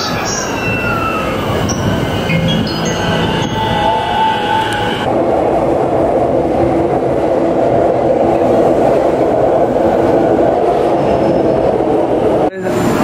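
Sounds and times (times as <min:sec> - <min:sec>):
train wheel squeal: 0:00.0 - 0:05.1
train rumbling and rattling past: 0:00.0 - 0:13.0.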